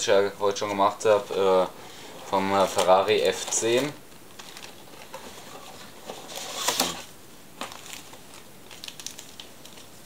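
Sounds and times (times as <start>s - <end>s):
cardboard box handling rustle: 0.7s - 8.3s
plastic bags crinkling: 2.3s - 10.0s.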